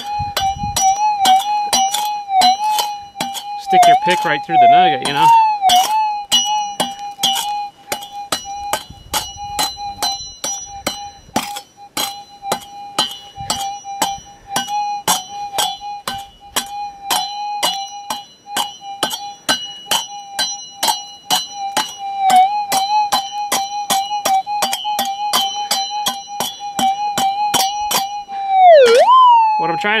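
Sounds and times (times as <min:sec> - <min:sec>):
pick chipping rocky ground: 0:00.0 - 0:28.2
metal detector steady tone: 0:00.0 - 0:30.0.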